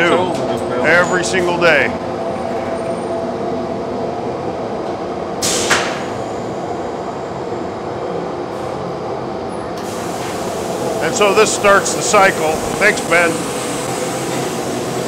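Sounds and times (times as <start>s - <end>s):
shop machinery drone: 0.0s - 15.0s
brief hiss: 5.4s - 6.1s.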